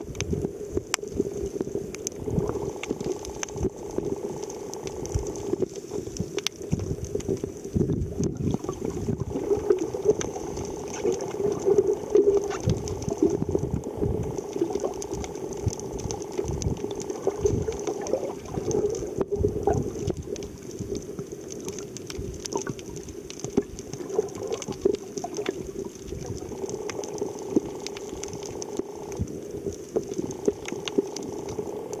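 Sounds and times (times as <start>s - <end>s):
small clicks: 0.0s - 7.6s, 9.7s - 32.0s
steady hum: 0.0s - 32.0s
underwater bubbling: 0.0s - 32.0s
water rushing against camera housing: 2.2s - 21.0s.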